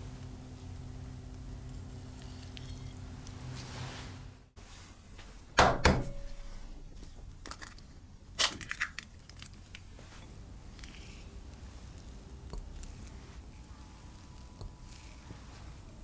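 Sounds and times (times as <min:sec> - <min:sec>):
eggshell crackling: 0:06.9 - 0:10.0.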